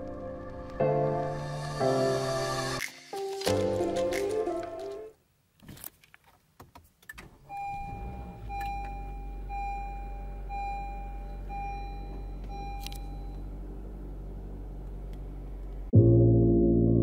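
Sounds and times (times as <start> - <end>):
car engine starting and idling: 7.1 - 15.9.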